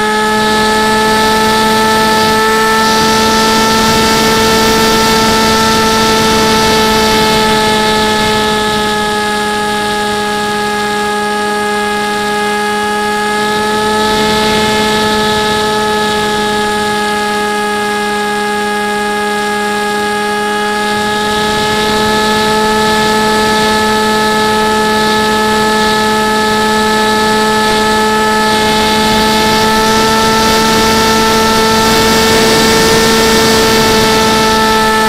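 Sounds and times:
model plane motor whining hum: 0.0 - 35.0
rushing air noise: 21.0 - 35.0.

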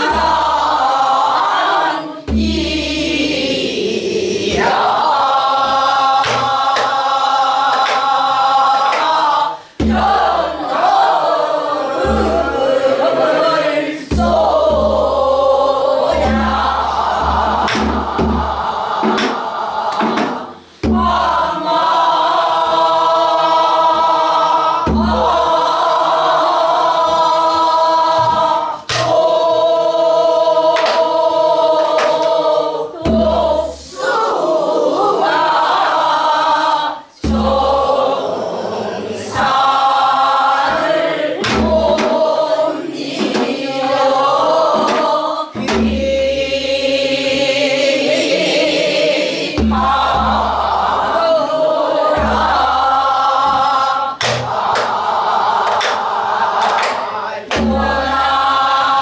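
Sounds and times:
mixed chorus singing folk song: 0.0 - 59.0
barrel drum thumps: 16.1 - 21.7, 27.0 - 29.2, 40.5 - 42.3, 49.6 - 50.8, 52.2 - 52.8, 57.5 - 58.2.

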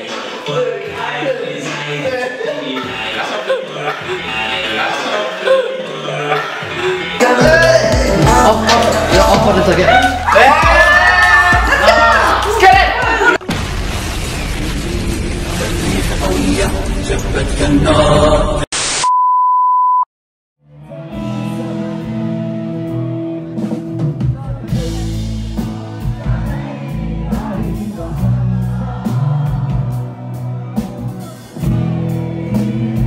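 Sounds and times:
man singing: 0.0 - 10.8, 16.0 - 18.7
drums: 6.7 - 18.6, 21.1 - 33.0
loud noise: 13.4 - 17.9
high beep: 19.0 - 20.1.

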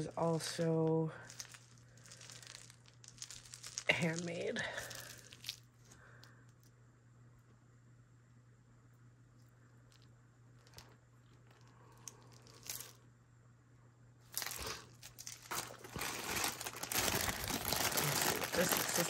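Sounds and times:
plastic bag crinkling: 0.0 - 6.0, 10.6 - 13.0, 14.3 - 19.0
faint steady hum: 0.0 - 19.0.

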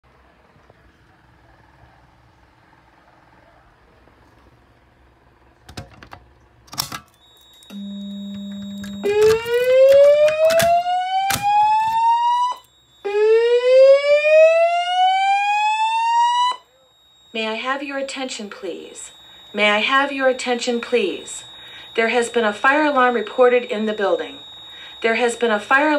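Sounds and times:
clicks: 5.7 - 12.8
fire alarm rising whoops: 7.1 - 25.9.

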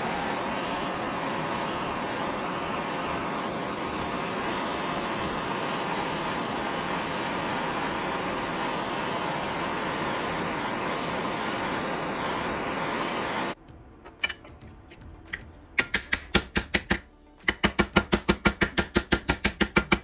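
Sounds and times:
gas torch hissing: 0.0 - 13.6.

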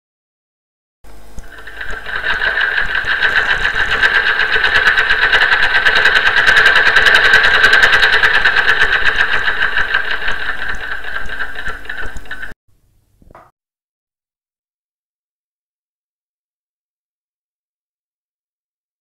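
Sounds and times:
sewing machine stitching: 1.4 - 12.6.

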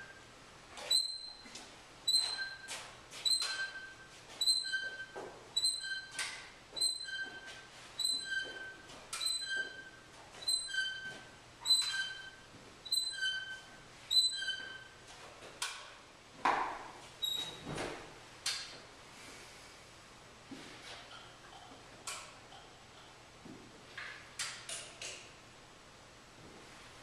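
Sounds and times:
short sharp squeaks: 0.8 - 15.0, 17.2 - 17.7.

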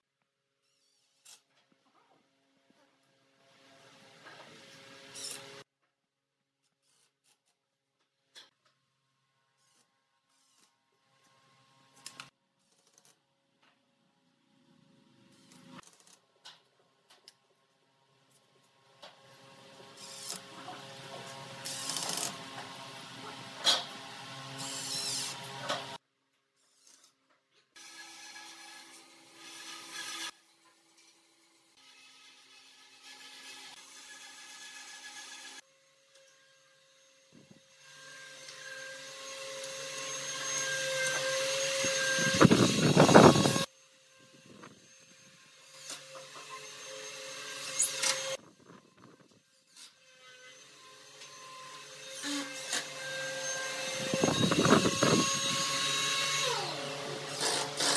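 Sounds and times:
cordless drill motor running: 21.6 - 22.4, 24.4 - 25.5, 37.8 - 46.0, 51.8 - 57.9.

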